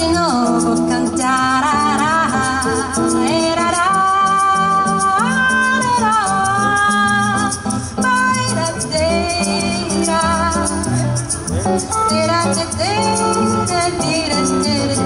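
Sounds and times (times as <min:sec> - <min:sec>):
woman singing jazz song: 0:00.0 - 0:11.1, 0:11.9 - 0:15.0.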